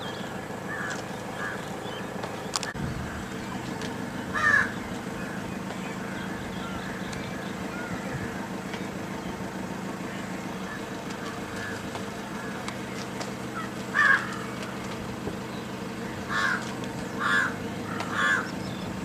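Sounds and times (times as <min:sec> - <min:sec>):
steady low hum: 0:00.0 - 0:19.0
crow cawing: 0:00.6 - 0:01.7, 0:04.3 - 0:08.6, 0:10.2 - 0:12.9, 0:13.5 - 0:14.9, 0:16.0 - 0:18.6.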